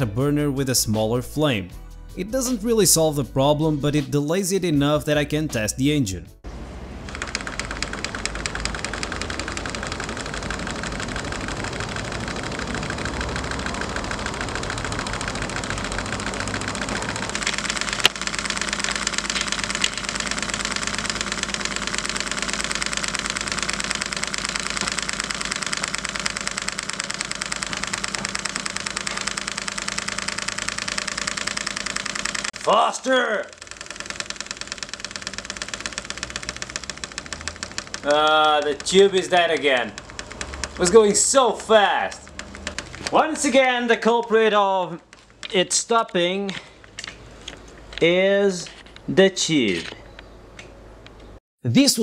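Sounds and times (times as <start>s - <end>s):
small engine rapid clicking: 7.0s - 48.1s.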